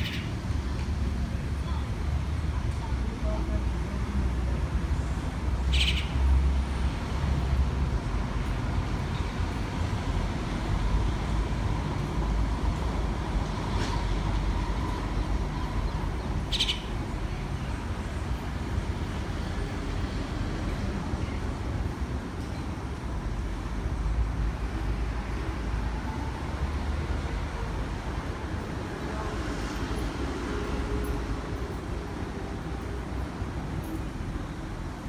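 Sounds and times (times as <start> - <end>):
short high bird calls: 16.5 - 16.9.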